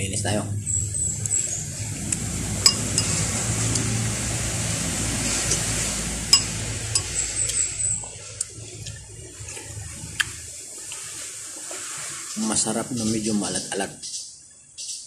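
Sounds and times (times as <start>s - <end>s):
steady rushing noise: 0.4s - 12.3s.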